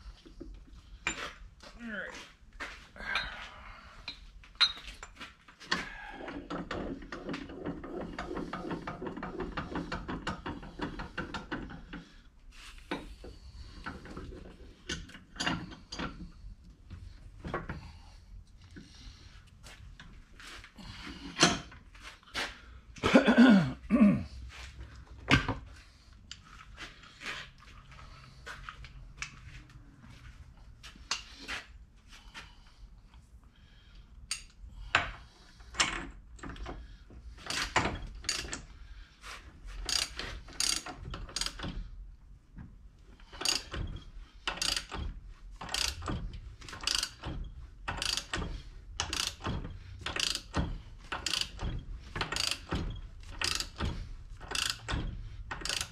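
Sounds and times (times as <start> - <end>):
ratchet wrench clicking: 37.4 - 38.6, 39.9 - 41.6, 43.4 - 43.8, 44.4 - 45.0, 45.6 - 55.9.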